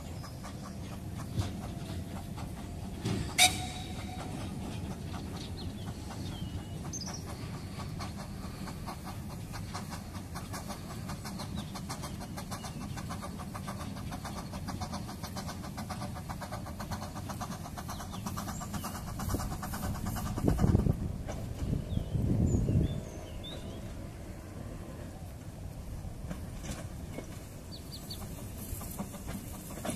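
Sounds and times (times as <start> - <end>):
distant steam locomotive chuffing: 0.0 - 29.9.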